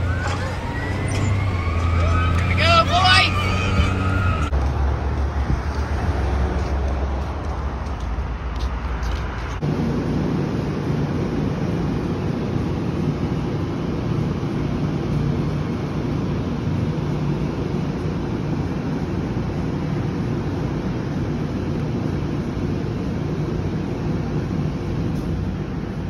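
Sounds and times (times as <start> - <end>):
low rumble of road traffic: 0.0 - 26.0.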